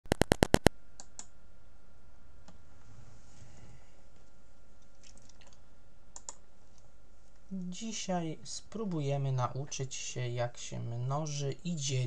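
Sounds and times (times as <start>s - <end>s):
computer mouse clicks: 0.1s - 1.3s, 4.8s - 6.9s
faint steady hum: 0.1s - 12.0s.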